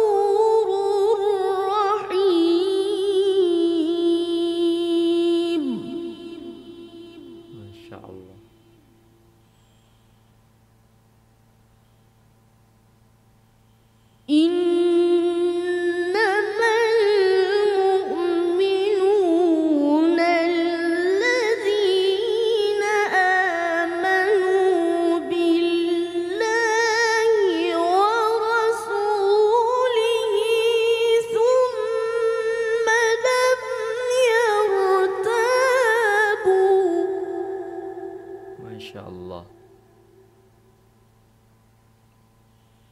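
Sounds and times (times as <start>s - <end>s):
child reciting melodically: 14.3s - 37.1s.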